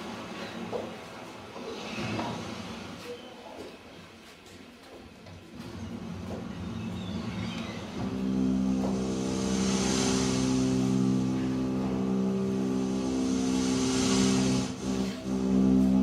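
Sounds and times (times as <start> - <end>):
hissing wash: 6.0 - 16.0
sustained music chord: 8.0 - 16.0.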